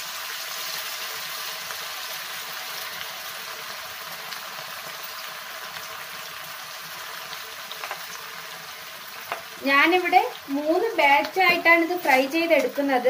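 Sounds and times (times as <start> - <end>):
oil sizzling and bubbling: 0.0 - 13.0
small pops and crackles: 7.7 - 8.2, 9.2 - 9.5, 11.2 - 12.8.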